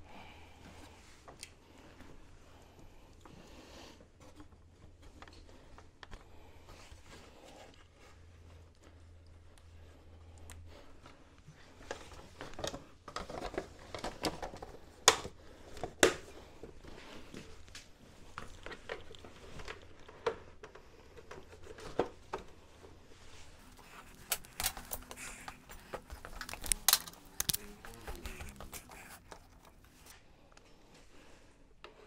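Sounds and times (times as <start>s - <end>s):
plastic parts clicking and knocking: 11.8s - 16.7s, 18.3s - 22.6s, 23.7s - 30.1s.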